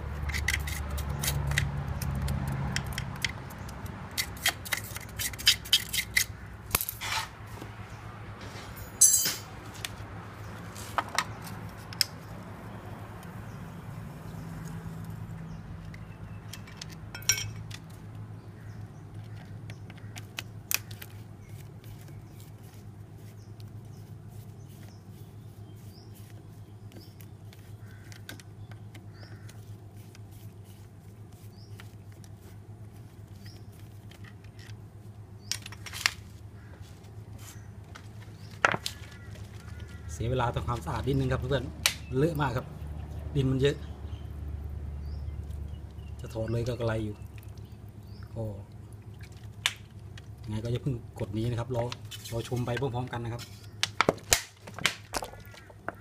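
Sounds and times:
sharp metallic knocks: 8.8 - 9.6.

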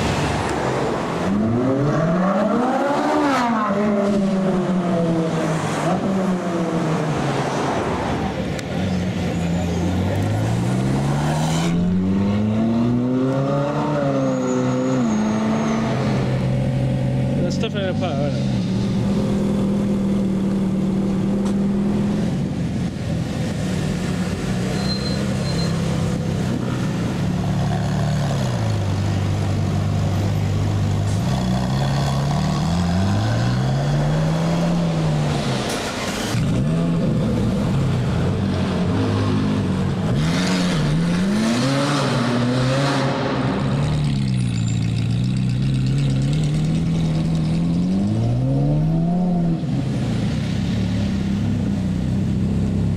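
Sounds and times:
car engine revving: 25.4 - 52.9.

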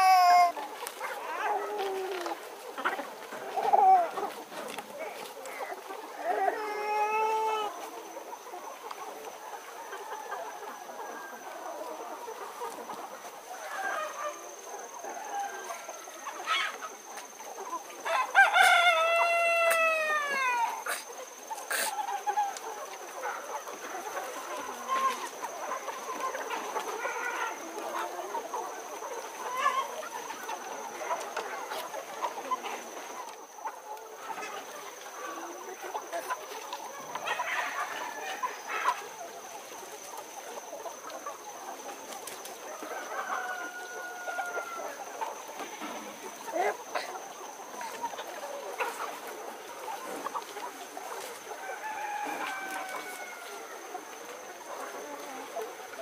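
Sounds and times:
rooster crowing: 0.0 - 0.6, 15.0 - 16.4, 18.0 - 20.9, 42.7 - 45.0, 51.6 - 53.8
chickens clucking: 0.0 - 56.0.

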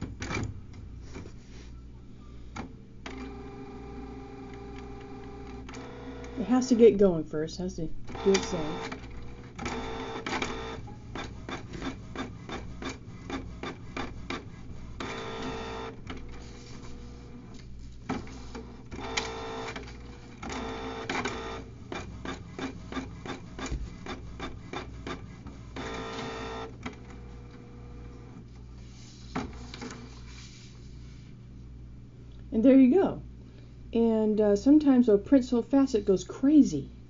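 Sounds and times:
printer whirring: 2.6 - 6.5, 8.1 - 30.4.

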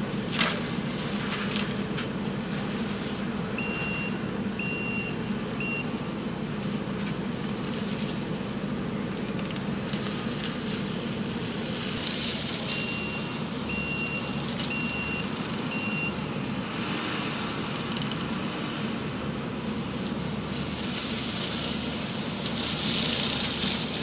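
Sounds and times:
forestry mulcher cutting brush: 0.0 - 4.1, 6.5 - 24.0
diesel engine running under load: 0.0 - 24.0
backup alarm beeps: 3.6 - 5.9, 12.7 - 16.2.

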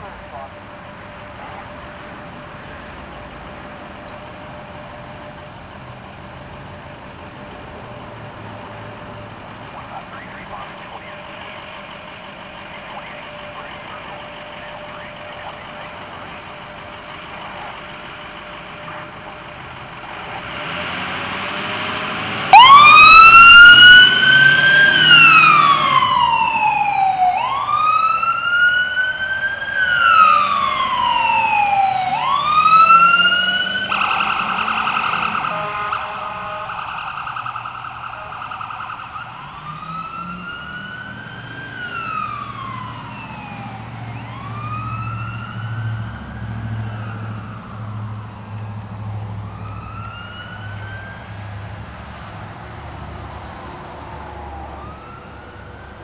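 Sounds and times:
engine running: 0.0 - 56.0
siren wailing: 8.7 - 51.7, 53.5 - 56.0
buzzing siren tone: 9.1 - 48.6.

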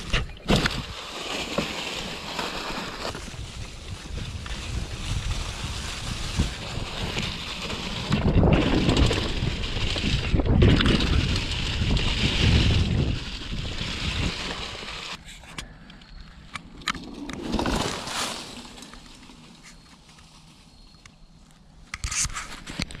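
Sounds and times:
bike tyres rolling over dry leaves: 0.0 - 21.8
wind on microphone: 3.0 - 15.2.

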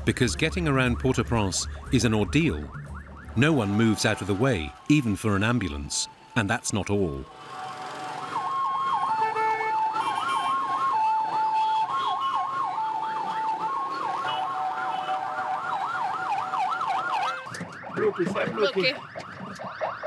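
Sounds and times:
ambulance siren yelp: 0.0 - 6.4, 7.2 - 20.0
two-tone siren note: 8.3 - 15.2, 17.0 - 20.0.

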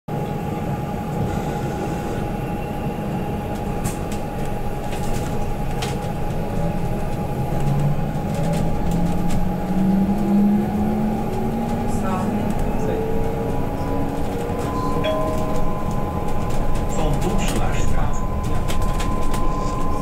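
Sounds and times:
road rumble: 0.1 - 20.0.

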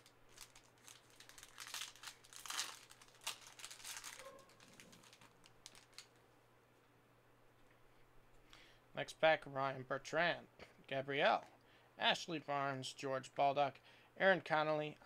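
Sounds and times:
plastic wrapper crinkling: 0.0 - 6.2.

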